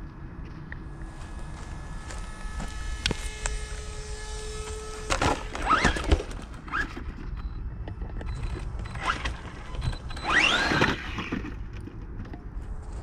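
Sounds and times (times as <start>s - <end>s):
steady low rumble: 0.0s - 5.5s
electric toy truck motor whining: 1.1s - 7.1s, 8.2s - 11.6s.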